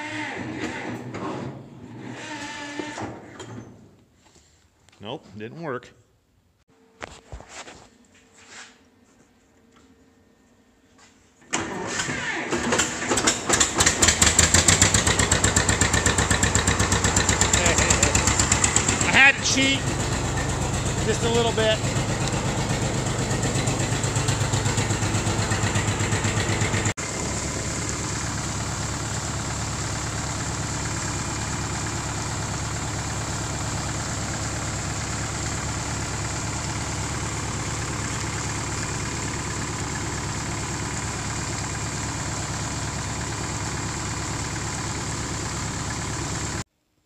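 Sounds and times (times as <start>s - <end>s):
engine idling with low rumble: 13.8s - 46.6s.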